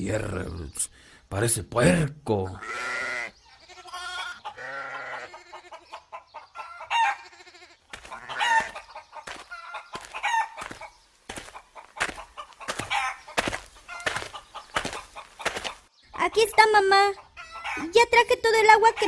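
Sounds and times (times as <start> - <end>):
chickens clucking: 3.4 - 18.0.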